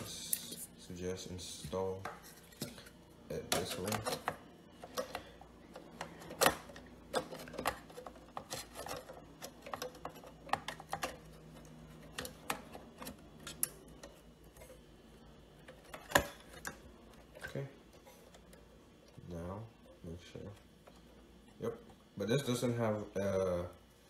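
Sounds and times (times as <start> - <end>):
clicks and knocks of computer parts: 2.0 - 14.8, 15.6 - 17.7.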